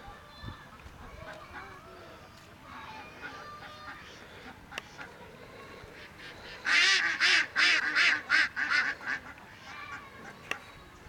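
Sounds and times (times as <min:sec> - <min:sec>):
waterfowl calling: 0:06.0 - 0:10.4.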